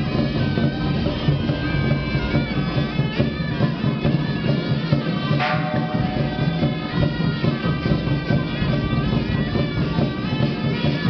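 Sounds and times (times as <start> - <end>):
drums and percussion: 0.0 - 11.0
reedy wind instrument melody: 0.0 - 11.0
cymbal crash: 5.3 - 8.4.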